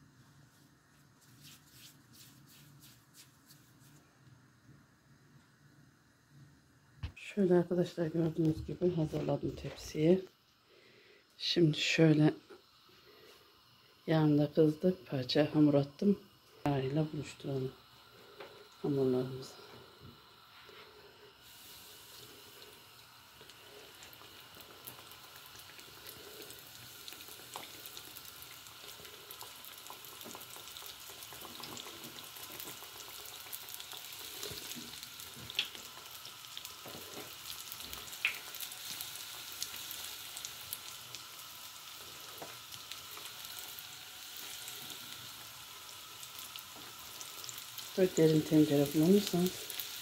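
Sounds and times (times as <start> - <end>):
dough frying in hot oil: 11.8 - 50.0.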